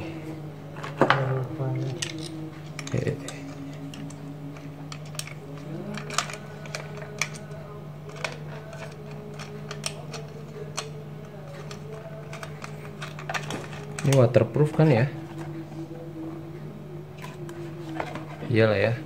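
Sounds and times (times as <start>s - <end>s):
low hum: 0.0s - 19.0s
hands clicking and tapping fittings: 8.1s - 10.9s.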